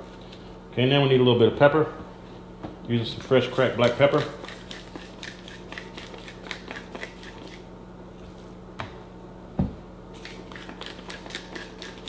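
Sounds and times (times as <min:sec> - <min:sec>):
steady low hum: 0:00.0 - 0:12.0
pepper mill grinding: 0:03.2 - 0:07.6, 0:10.2 - 0:12.0.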